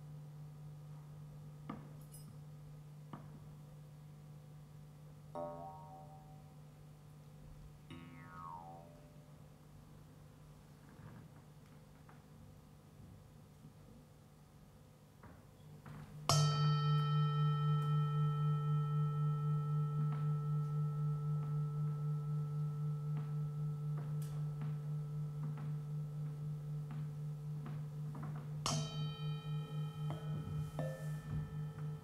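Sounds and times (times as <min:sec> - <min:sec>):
metal bell strike ringing: 0:28.7 - 0:32.0.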